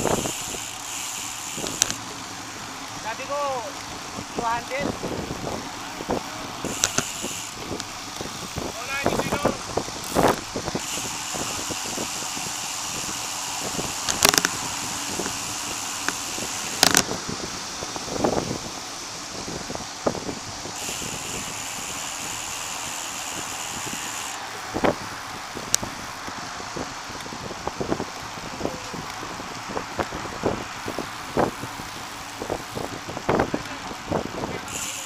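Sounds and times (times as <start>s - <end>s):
wind rushing: 0.0s - 34.9s
bicycle tyre noise: 0.0s - 35.0s
bike knocks and rattles: 6.6s - 12.5s, 13.7s - 17.2s.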